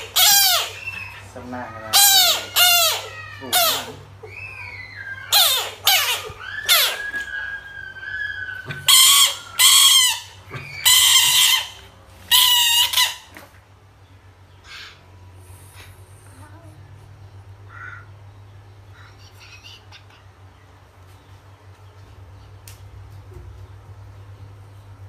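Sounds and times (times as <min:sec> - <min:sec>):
animal squeals: 0:00.0 - 0:13.3.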